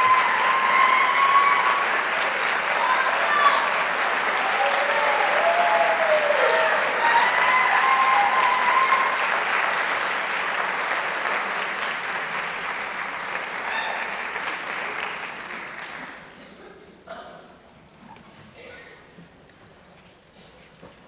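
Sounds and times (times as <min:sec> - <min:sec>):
audience cheering: 0:00.0 - 0:09.7
audience applauding: 0:00.0 - 0:16.4.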